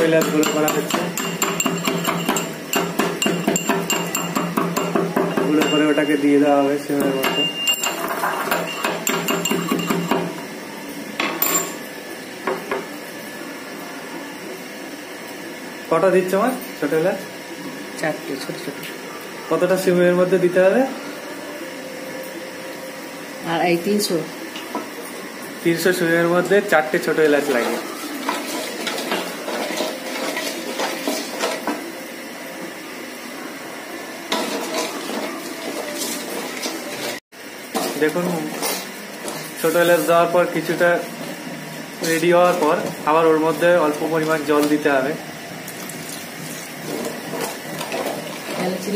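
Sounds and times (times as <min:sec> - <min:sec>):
pestle clinking in metal mortar: 0:00.0 - 0:06.1, 0:07.0 - 0:10.3
spoon knocking against metal pot: 0:00.1 - 0:06.0, 0:07.2 - 0:10.3
wooden spoon scraping a pot: 0:27.5 - 0:31.7.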